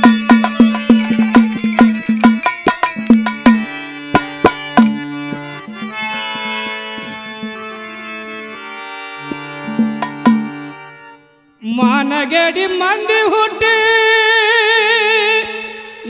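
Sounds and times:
hand cymbals clinking: 0.0s - 5.2s
hand drum strokes: 0.0s - 7.6s, 9.3s - 10.6s
harmonium chords: 0.0s - 16.0s.

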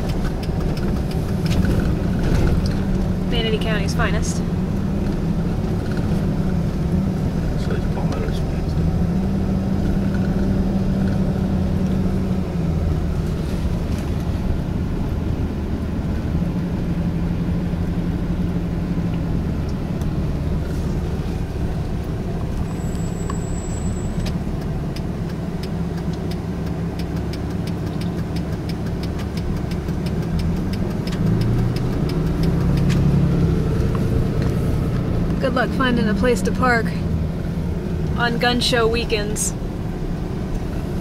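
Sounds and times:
car engine and road noise: 0.0s - 41.0s
faint rapid ticking: 24.1s - 32.9s.

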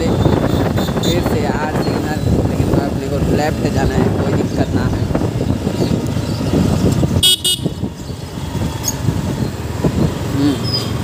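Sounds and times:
motorcycle engine rumble: 0.0s - 11.0s
vehicle horn beeping: 7.2s - 7.8s.

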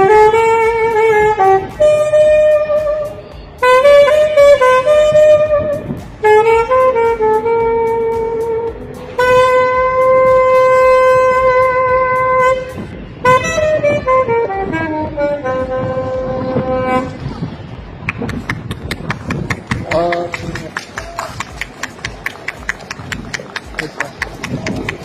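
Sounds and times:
solo saxophone melody: 0.0s - 17.3s.

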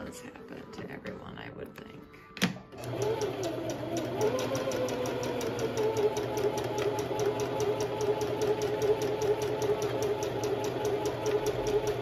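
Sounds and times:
sewing machine motor humming: 2.7s - 12.0s.

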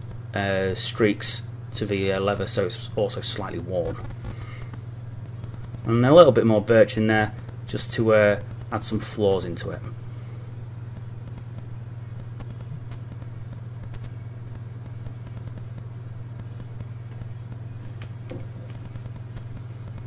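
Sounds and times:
low background hum: 0.0s - 20.0s
faint clicks: 10.8s - 20.0s.

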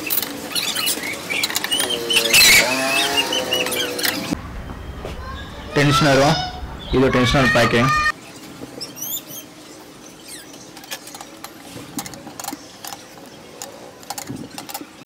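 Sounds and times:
small metal parts clicking: 10.3s - 15.0s.

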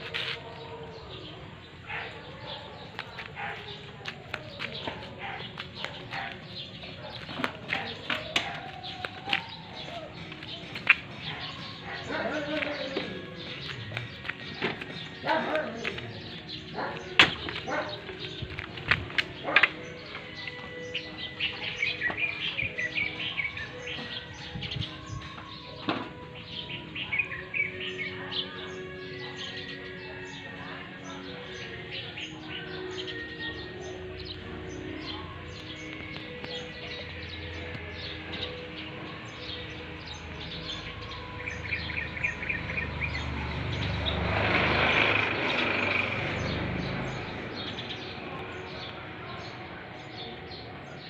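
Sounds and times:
small birds chirping: 0.0s - 51.0s
vehicle passing: 39.7s - 50.3s.

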